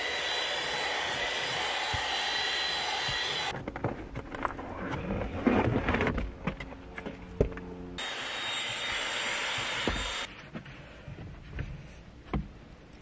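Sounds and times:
handheld vacuum running: 0.0 - 3.5, 8.0 - 10.3.

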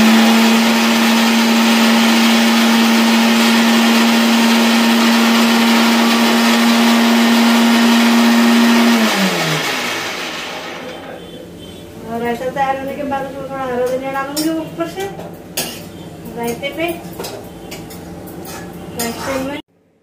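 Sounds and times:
mixer grinder motor whirring: 0.0 - 11.1.

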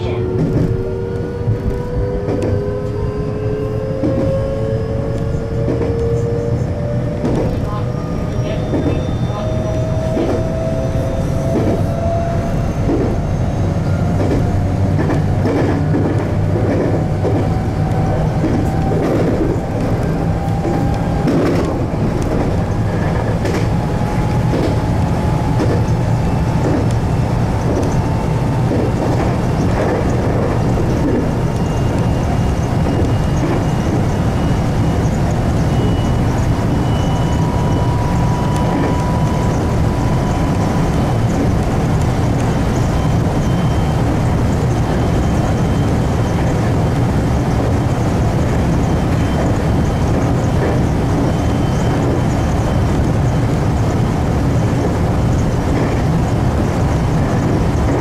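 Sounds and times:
electric train motor whine: 0.0 - 58.0
wheels clicking over rail joints: 12.8 - 34.2.

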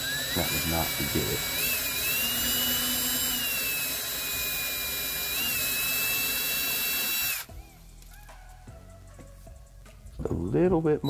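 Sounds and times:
electric drill whining: 0.0 - 8.3.

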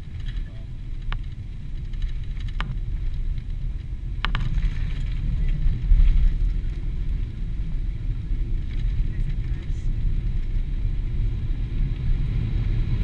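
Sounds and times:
airplane cabin rumble on landing: 0.0 - 13.0
sharp knocks: 4.2 - 4.6.

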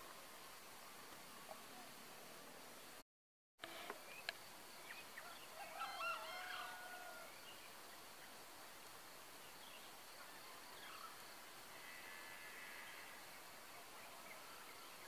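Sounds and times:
steady background hiss: 0.0 - 3.0, 3.6 - 15.0
junglefowl crowing: 5.2 - 7.3.

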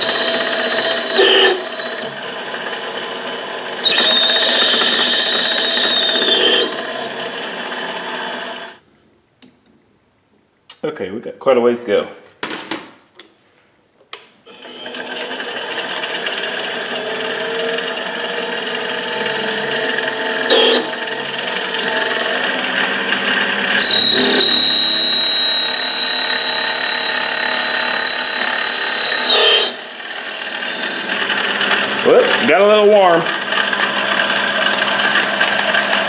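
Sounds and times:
high steady cutting squeal: 0.0 - 2.4, 3.8 - 8.6, 18.9 - 32.3
lathe running: 0.0 - 8.8, 14.6 - 32.6, 33.2 - 36.0.

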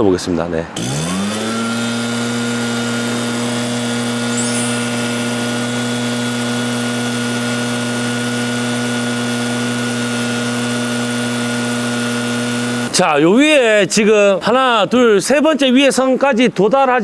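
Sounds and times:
two-stroke leaf blower: 0.8 - 12.9.

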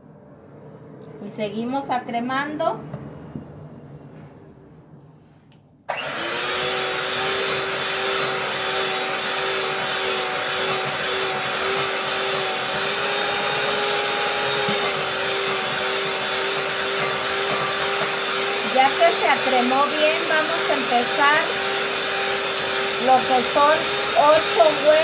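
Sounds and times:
electric mixer whining: 5.9 - 25.0.

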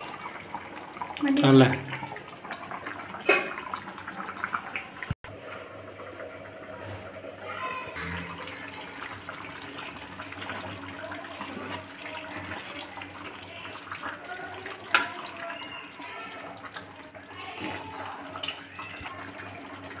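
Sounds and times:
curry bubbling in a pan: 0.0 - 20.0.

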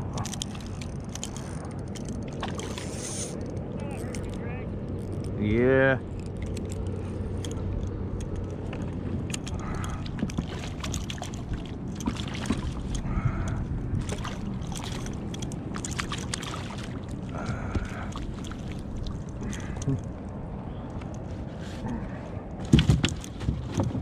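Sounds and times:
water slapping against hull: 8.5 - 19.9, 21.8 - 24.0
fish splashing: 14.0 - 19.8.

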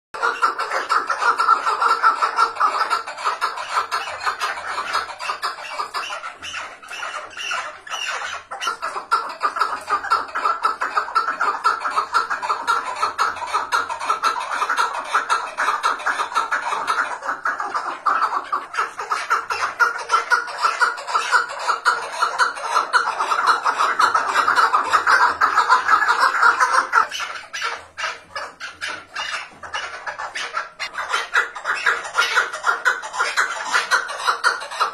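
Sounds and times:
partridge calling: 0.2 - 34.9.

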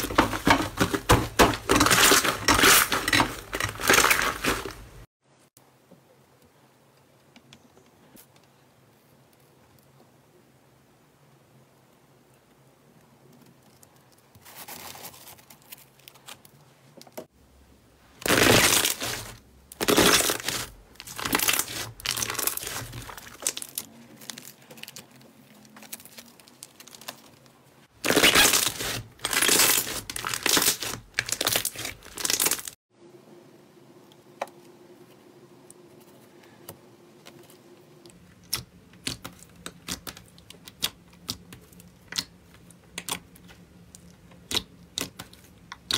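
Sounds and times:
slime crackling and popping: 18.2 - 27.4, 28.0 - 32.8, 38.4 - 45.9
slime squishes: 18.2 - 32.8, 37.2 - 45.9.

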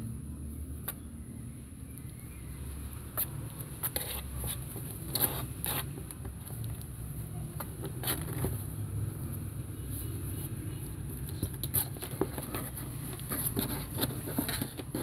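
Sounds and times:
kittens' claws scratching cardboard: 3.1 - 6.9, 7.6 - 8.7, 10.0 - 15.0.

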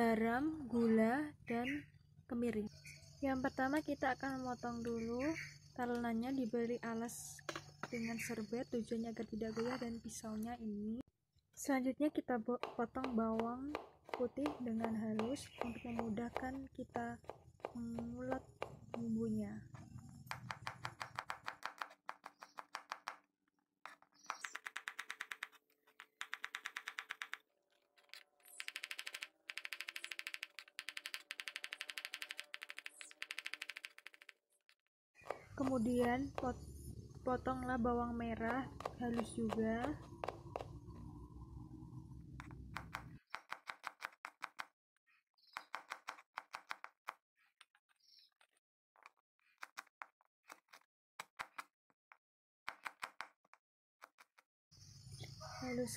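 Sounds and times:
knife chopping on wooden board: 12.6 - 19.1, 20.2 - 23.2, 38.4 - 40.8.

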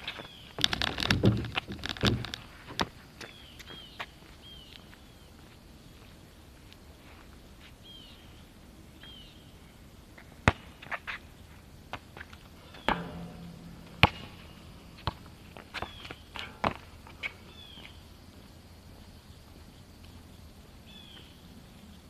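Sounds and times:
faint outdoor background: 0.0 - 22.0
sharp knocks: 12.9 - 15.9.

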